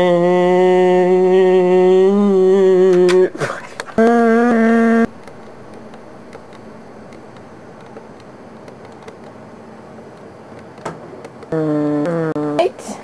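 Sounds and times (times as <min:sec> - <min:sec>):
recording hiss: 0:00.9 - 0:13.0.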